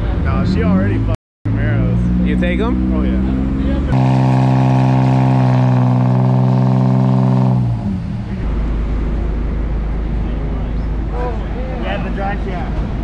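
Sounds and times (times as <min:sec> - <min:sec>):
car engine revving under load: 0:00.1 - 0:09.0.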